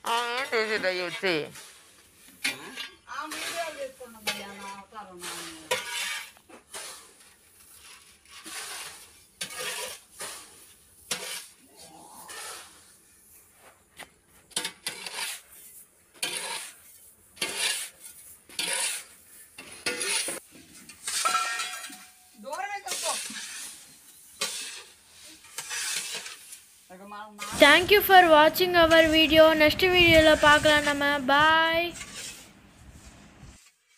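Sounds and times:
hoe scraping on concrete: 0.0 - 33.9
gritty rattle of granules: 14.6 - 26.8.

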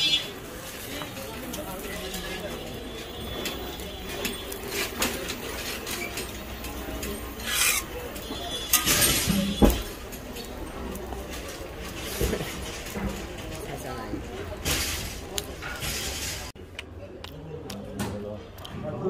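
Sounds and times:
metal spatula scraping griddle: 7.4 - 8.0.

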